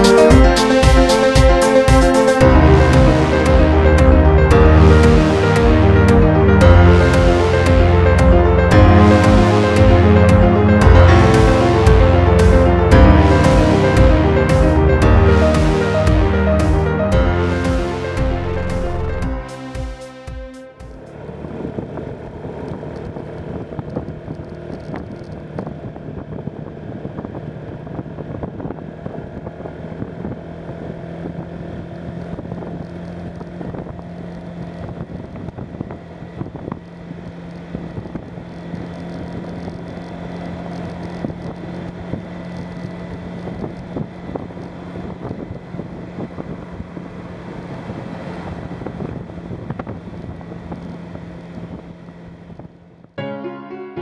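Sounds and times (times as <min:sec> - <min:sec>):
motorcycle engine cruising: 0:20.8 - 0:52.9
wind buffeting microphone: 0:43.2 - 0:52.7.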